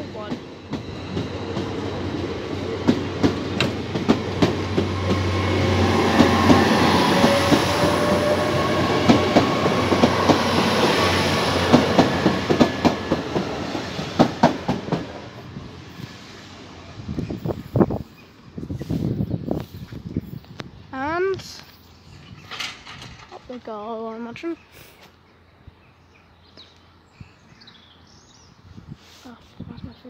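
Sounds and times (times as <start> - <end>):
train passing with rushing rumble: 0.0 - 24.7
wheels clattering over rail joints: 21.4 - 24.4.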